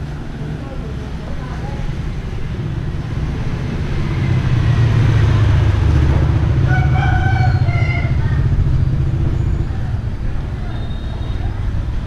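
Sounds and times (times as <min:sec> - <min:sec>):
loud low rumble: 0:01.8 - 0:10.7
rooster crowing: 0:06.7 - 0:08.5.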